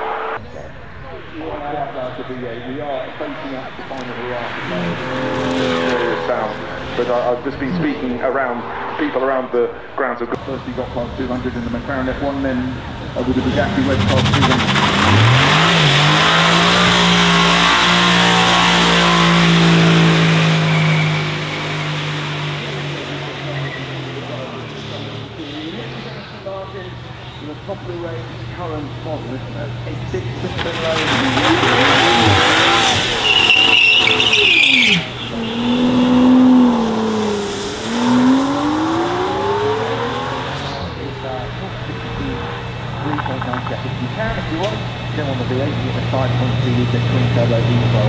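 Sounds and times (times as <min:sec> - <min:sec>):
car engine at high revs: 0:00.0 - 0:48.0
tyres spinning: 0:30.2 - 0:35.7.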